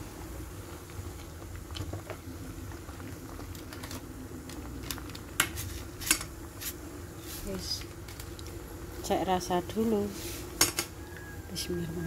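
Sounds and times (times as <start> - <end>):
soup bubbling in a pot: 0.0 - 9.1.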